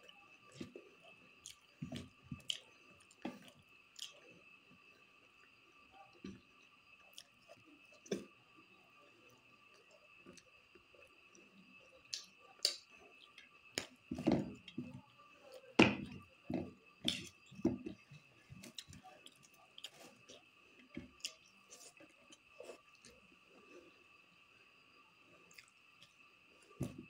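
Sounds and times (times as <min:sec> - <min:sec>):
faint steady whine: 0:00.0 - 0:27.0
wet chewing and mouth smacks: 0:01.4 - 0:03.4, 0:04.0 - 0:04.2, 0:21.1 - 0:23.2, 0:25.5 - 0:26.1.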